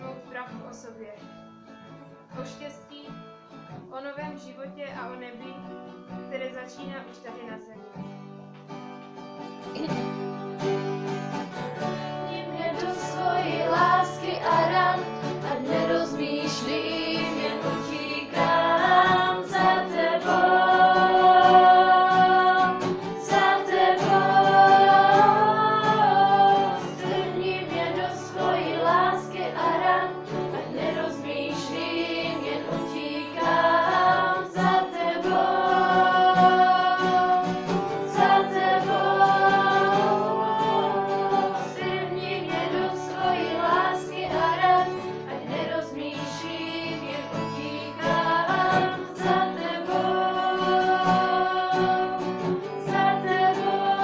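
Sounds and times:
instrumental accompaniment: 5.1 - 54.0
group singing worship song: 12.0 - 54.0.

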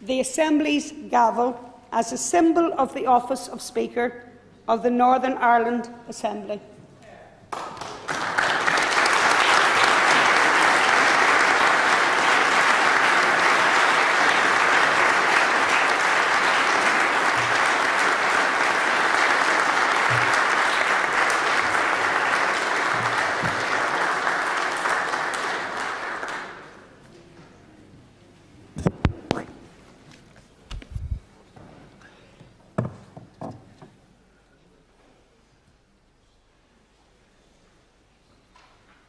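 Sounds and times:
applause: 7.5 - 27.0.

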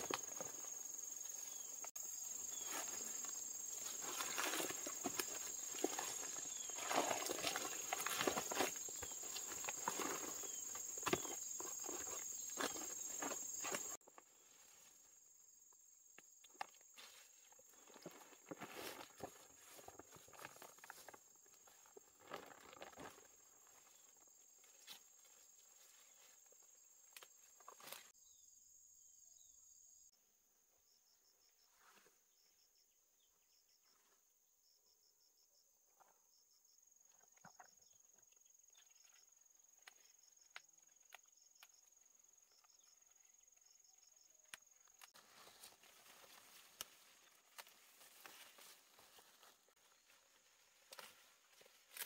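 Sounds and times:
insect chirping: 0.0 - 52.0.

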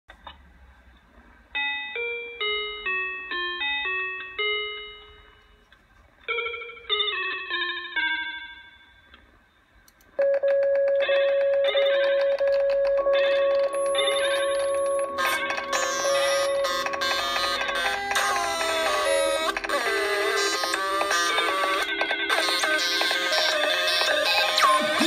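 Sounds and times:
bell-like beeping notes: 10.2 - 19.7.

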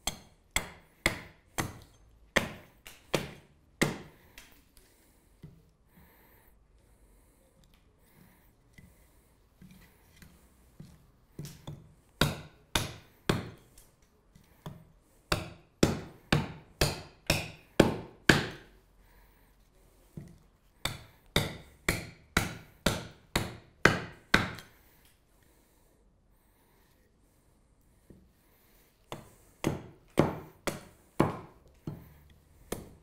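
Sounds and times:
axe chopping wood: 0.0 - 4.5, 11.4 - 13.6, 15.3 - 18.7, 20.8 - 24.7, 29.1 - 33.0.

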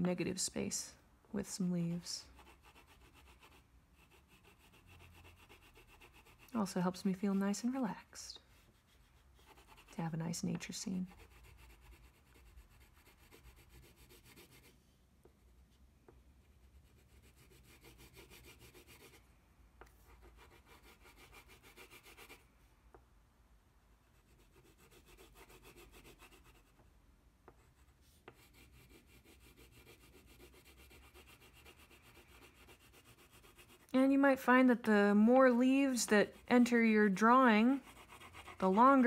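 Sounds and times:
crayon scratching on paper: 2.2 - 7.8, 8.5 - 14.7, 16.7 - 19.2, 20.1 - 22.4, 24.1 - 26.7, 27.6 - 33.9, 35.8 - 39.0.

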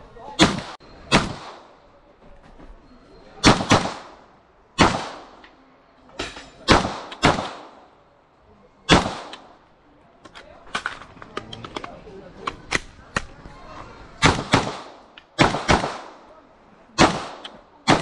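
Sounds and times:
carbine gunshots with echo: 0.4 - 1.8, 3.4 - 5.4, 6.7 - 7.9, 8.9 - 9.6, 14.2 - 16.3, 17.0 - 18.0.

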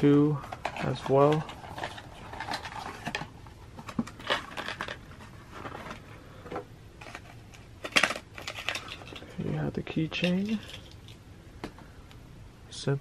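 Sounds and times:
plastic bag crinkling: 0.4 - 6.1, 7.0 - 9.4, 10.3 - 11.2.

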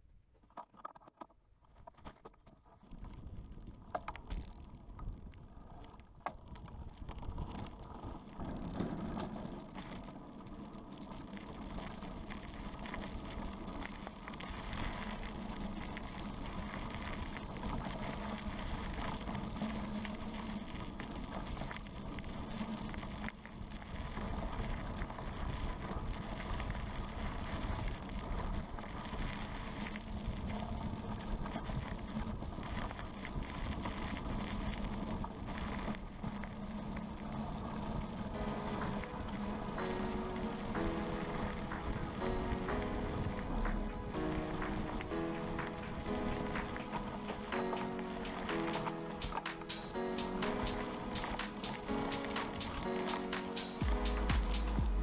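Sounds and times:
bike tyres rolling: 0.4 - 55.0
steady hum: 37.4 - 55.0.

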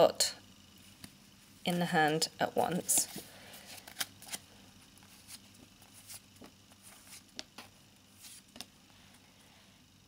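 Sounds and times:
cards clicking and flicking: 2.9 - 4.4.

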